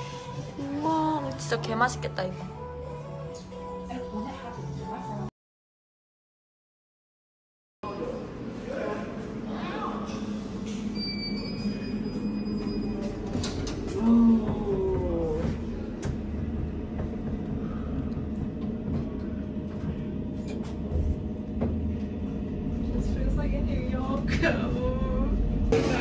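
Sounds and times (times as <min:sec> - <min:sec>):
elevator rumble: 0:08.1 - 0:26.0.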